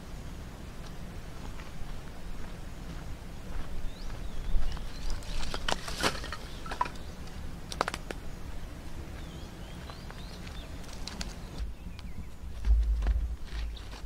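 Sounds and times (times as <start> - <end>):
firewood sticks knocking and clattering: 5.1 - 8.2.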